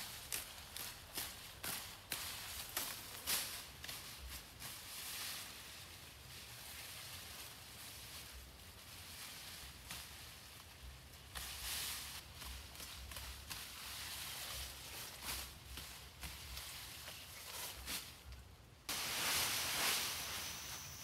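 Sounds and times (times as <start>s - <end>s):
tall grass rustling and swishing: 0.0s - 18.3s, 18.9s - 21.0s.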